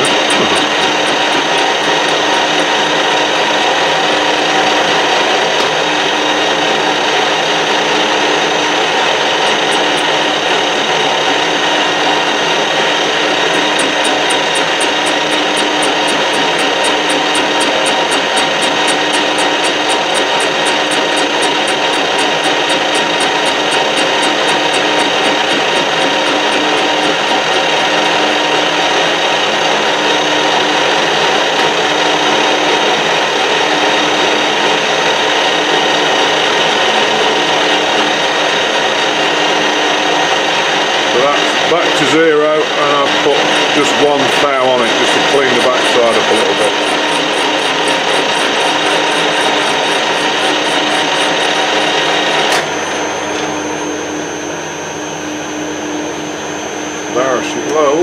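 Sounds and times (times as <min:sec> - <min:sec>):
fast high ticking: 0:00.0 - 0:03.0, 0:09.1 - 0:11.8, 0:13.2 - 0:28.5, 0:43.1 - 0:52.5
lathe motor and gearing drone: 0:00.0 - 0:58.0.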